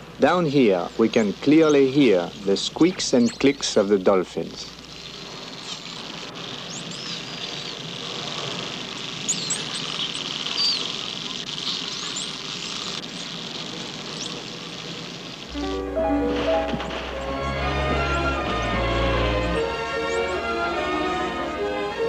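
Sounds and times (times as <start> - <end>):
dolphins whistling: 1.0 - 3.8, 4.9 - 21.6
music: 15.5 - 22.0.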